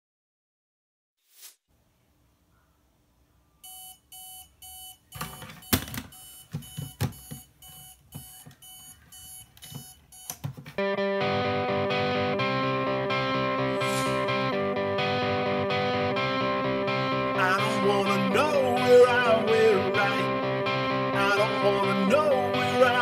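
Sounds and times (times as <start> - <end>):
alarm beeping: 3.6 - 10.4
loud electric guitar music: 10.8 - 23.0.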